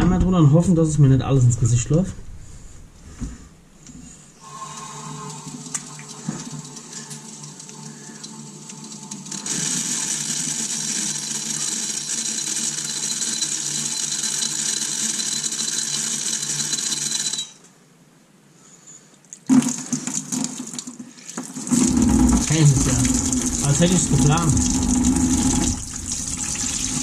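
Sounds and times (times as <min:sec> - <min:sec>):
garden hose water hissing: 0:04.4 - 0:10.4, 0:21.2 - 0:27.0.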